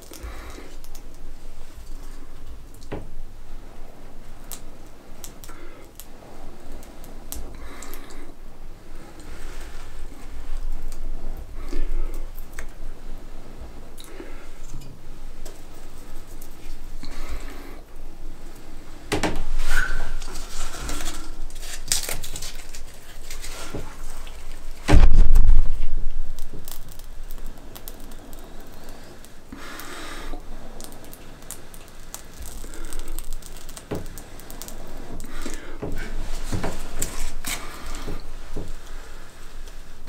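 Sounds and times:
objects being handled: 18.5 - 40.0
loud deep thump: 24.9 - 26.3.

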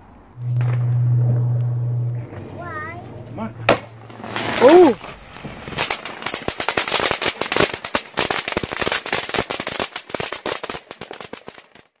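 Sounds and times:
firework fountain crackling pops: 3.6 - 12.0.

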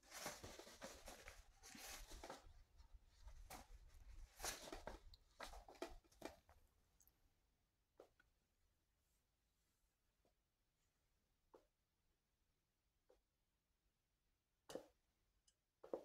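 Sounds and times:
faint rustling and scraping: 0.0 - 6.6.

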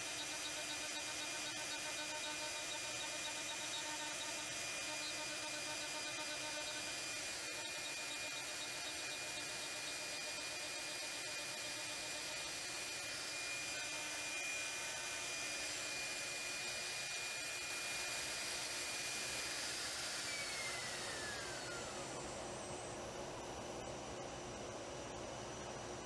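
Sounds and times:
router spindle whine: 0.0 - 26.0.

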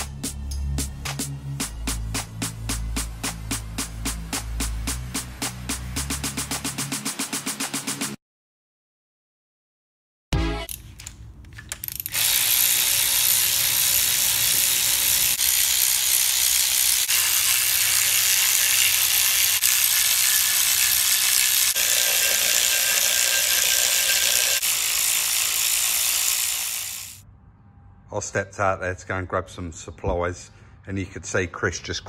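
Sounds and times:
electric ratchet motor whirring: 11.8 - 27.2.

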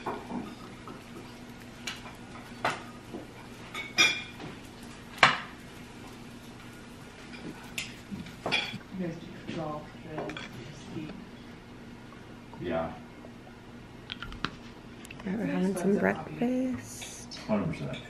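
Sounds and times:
dishes and utensils clinking: 0.0 - 4.6, 7.2 - 8.8.

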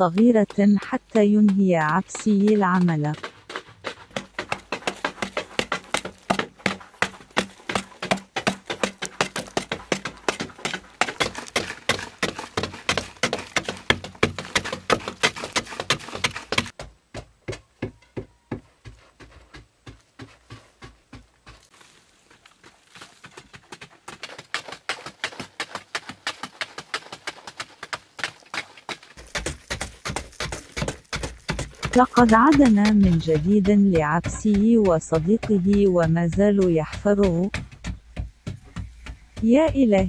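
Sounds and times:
digging tools striking earth: 0.0 - 16.9, 28.9 - 40.0.

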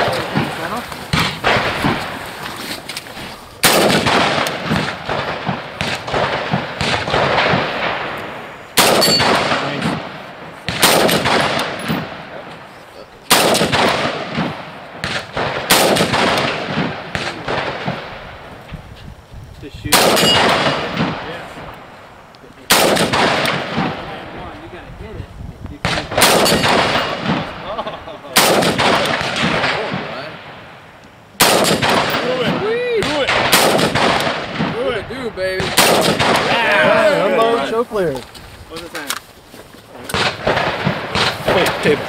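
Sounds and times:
rifle shots: 0.0 - 2.6, 3.6 - 12.7, 13.3 - 18.5, 19.9 - 21.8, 22.7 - 24.4, 25.8 - 30.8, 31.4 - 37.0, 40.0 - 42.0
rolling echo: 0.0 - 18.8, 19.9 - 24.7, 25.8 - 37.0, 39.9 - 42.0.

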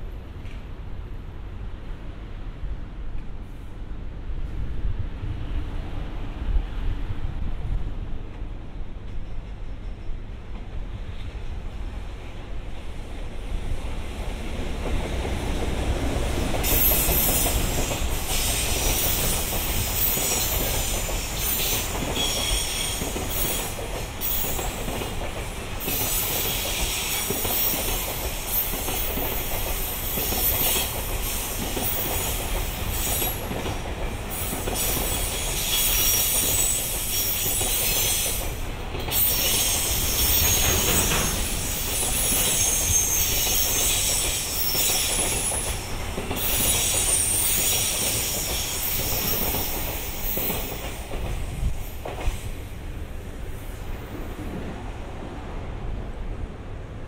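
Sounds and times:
freight train rumbling: 0.0 - 57.0
train wheels squealing: 16.6 - 52.5.

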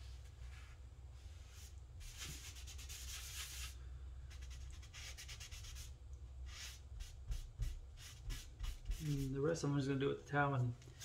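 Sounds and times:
cloth rag rubbing wood: 1.4 - 3.8, 6.5 - 9.4.

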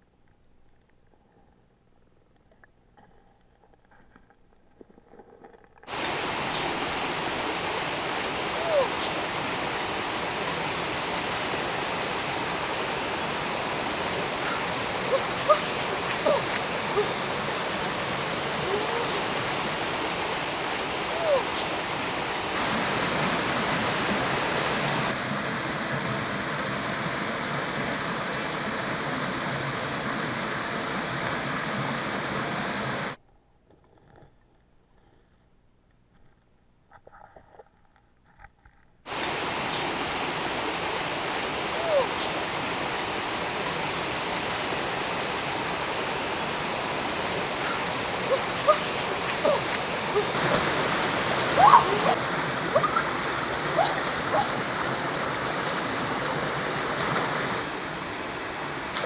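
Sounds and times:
stream rushing over rocks: 5.9 - 33.2, 39.1 - 59.0.

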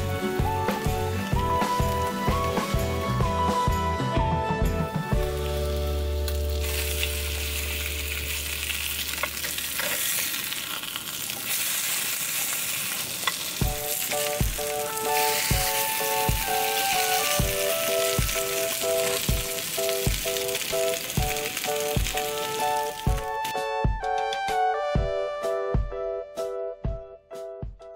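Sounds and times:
background music with beat: 0.0 - 7.1, 13.6 - 27.9
toast sizzling in a pan: 0.1 - 3.2, 5.2 - 23.4.

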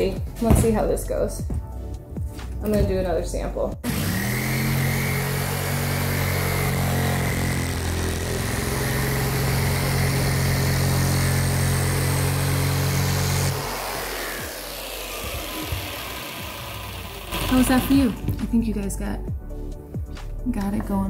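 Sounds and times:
jigsaw cutting plywood: 3.8 - 18.4.

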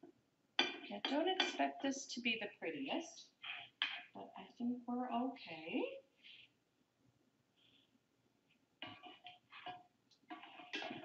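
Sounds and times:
kitchenware clinking: 0.6 - 1.7, 8.8 - 11.0.

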